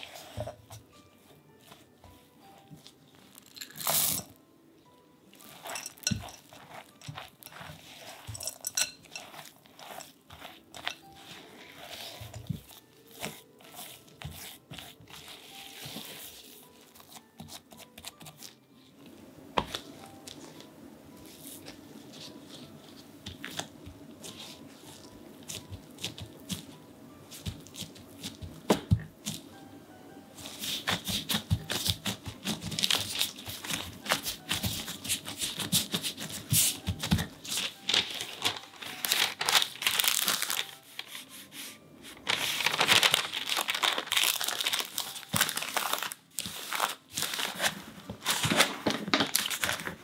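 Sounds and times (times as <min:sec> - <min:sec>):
dough crackles and clicks: 0:00.0 - 0:04.4, 0:05.3 - 0:29.6, 0:30.3 - 0:41.2, 0:42.1 - 0:50.0
spatula scraping dough in glass bowl: 0:05.4 - 0:16.6.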